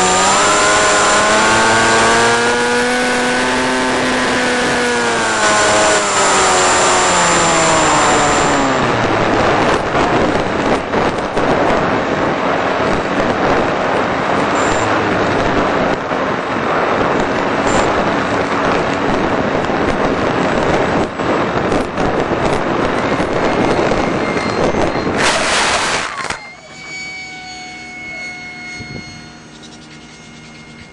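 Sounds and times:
electric motor and propeller whine: 0:00.0 - 0:30.9
wind rushing: 0:08.0 - 0:26.3.

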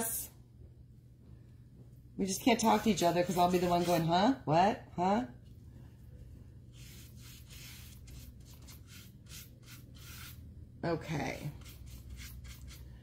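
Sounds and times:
brush scrubbing paint: 0:02.6 - 0:04.1, 0:06.7 - 0:10.4, 0:11.5 - 0:13.0.

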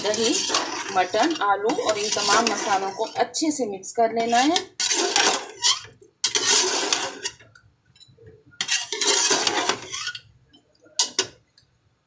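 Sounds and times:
metal spoon scraping pot: 0:00.0 - 0:03.4, 0:04.2 - 0:07.4, 0:08.6 - 0:10.3, 0:11.0 - 0:11.4.

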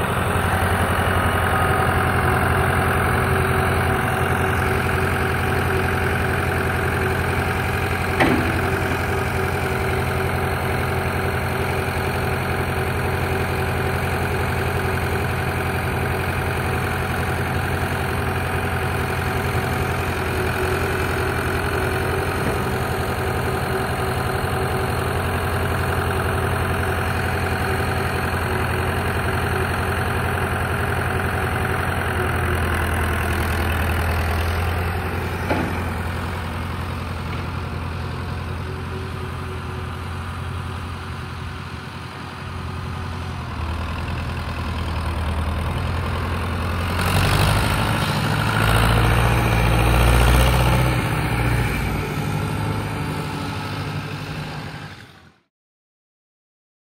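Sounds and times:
tractor engine running: 0:00.0 - 0:55.2.

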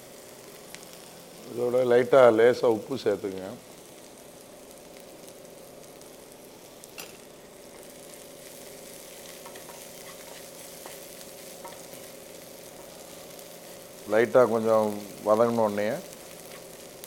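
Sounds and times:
food sizzling in hot oil: 0:00.0 - 0:17.0
spatula stirring: 0:09.3 - 0:12.2.

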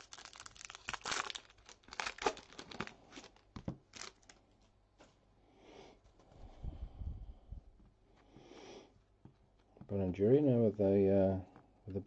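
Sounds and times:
foil wrapper tearing and crinkling: 0:00.0 - 0:04.4.

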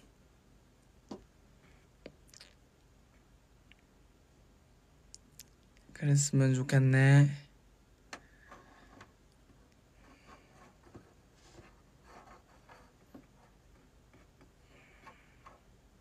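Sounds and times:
soft rustles: 0:08.4 - 0:13.9.

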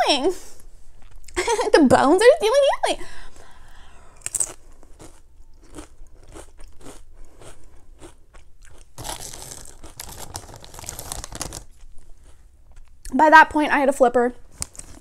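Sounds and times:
chips being chewed: 0:04.2 - 0:13.0, 0:14.5 - 0:15.0
plastic chip bag crinkling: 0:08.7 - 0:12.4, 0:14.5 - 0:15.0.

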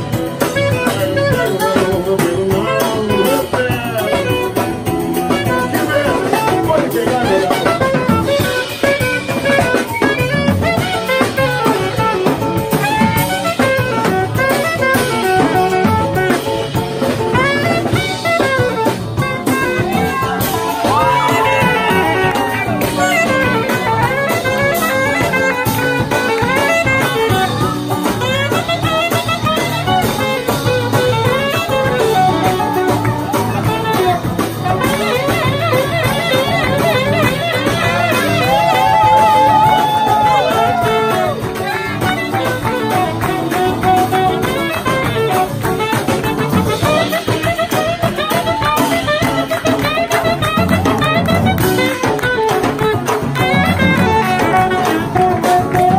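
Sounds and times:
drums: 0:00.0 - 0:55.9
live band playing: 0:00.0 - 0:55.9
saxophone melody: 0:00.0 - 0:55.9.

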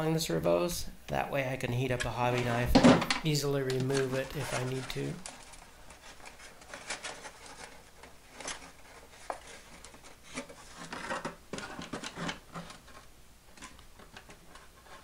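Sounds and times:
foam model rubbing and scraping: 0:03.8 - 0:13.1, 0:14.4 - 0:15.0.

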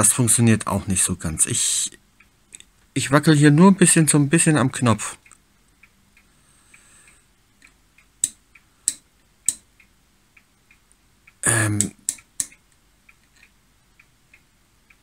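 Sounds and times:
switch clicks: 0:07.6 - 0:09.7, 0:10.7 - 0:13.5.

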